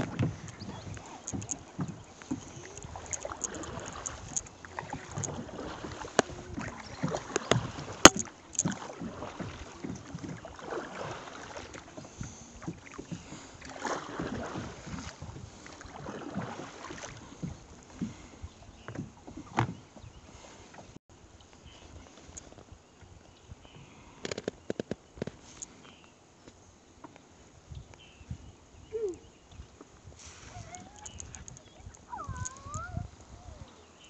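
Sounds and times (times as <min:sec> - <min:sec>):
knocks and clicks on boat: 0:00.0 - 0:21.0, 0:29.7 - 0:33.1
water lapping at hull: 0:00.0 - 0:25.9, 0:28.3 - 0:34.0.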